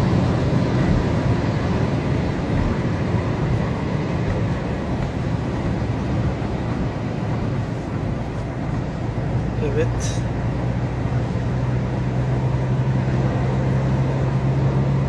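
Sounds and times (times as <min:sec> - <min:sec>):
car cabin road noise: 0:00.0 - 0:15.0.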